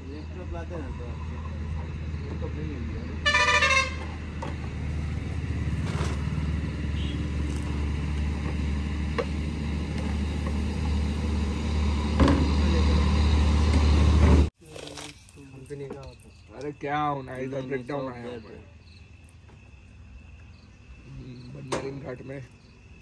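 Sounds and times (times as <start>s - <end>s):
diesel truck engine humming: 0.4s - 14.5s
truck horn: 3.2s - 4.2s, 6.8s - 7.5s.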